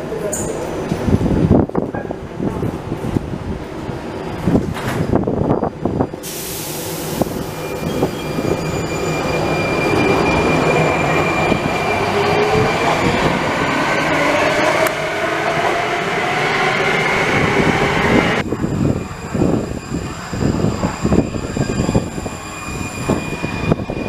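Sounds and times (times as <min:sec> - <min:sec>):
air brake hiss: 0:06.2 - 0:07.4.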